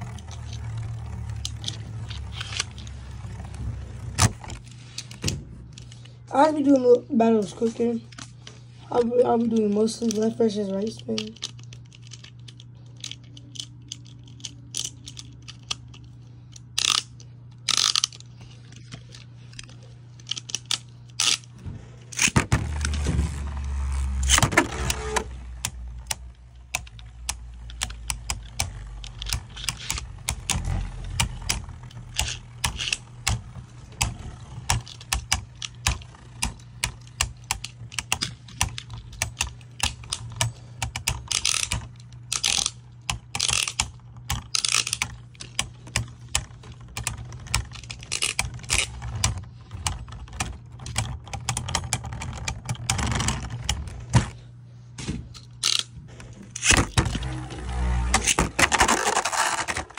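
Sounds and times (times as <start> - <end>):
spinning tops whirring scrape: 0.0 - 5.2, 20.4 - 43.8, 55.6 - 59.9.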